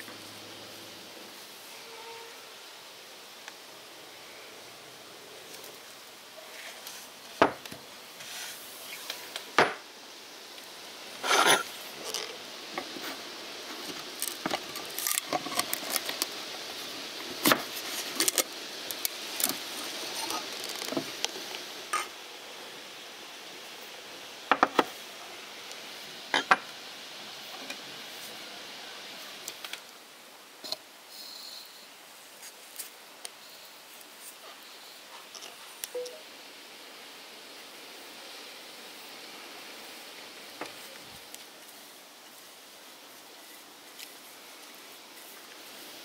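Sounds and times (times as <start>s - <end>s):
metal tin clinks and scrapes: 11.2s - 11.7s.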